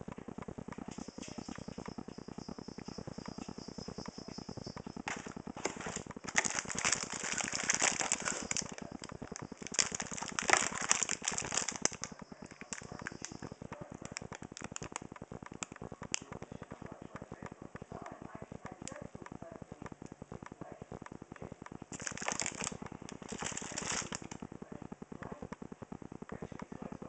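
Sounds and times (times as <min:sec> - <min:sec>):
scattered clicks: 0:00.0 - 0:27.0
steady low buzz: 0:00.0 - 0:27.0
plastic packaging crinkling: 0:05.1 - 0:16.2, 0:21.9 - 0:24.4.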